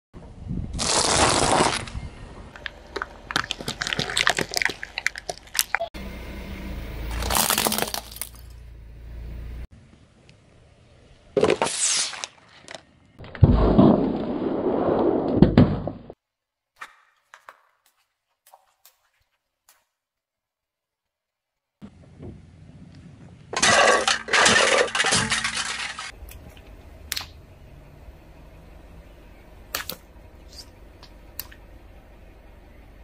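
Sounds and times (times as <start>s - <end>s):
plastic bottles cracking under tyre: 0.8s - 1.9s, 2.5s - 5.8s, 7.2s - 8.4s.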